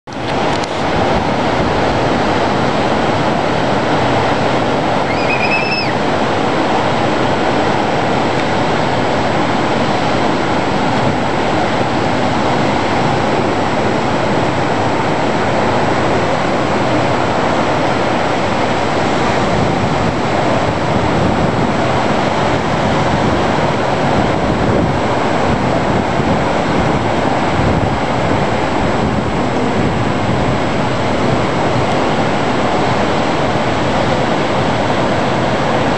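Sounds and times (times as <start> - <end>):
ocean waves breaking: 0.1 - 35.9
brief high-pitched call: 5.0 - 6.0.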